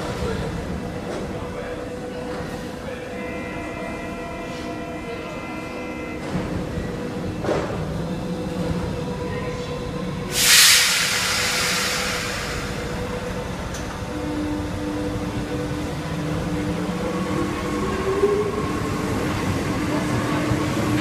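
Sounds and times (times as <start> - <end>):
air hiss: 10.3 - 13.5
train motor tone: 10.3 - 19.4.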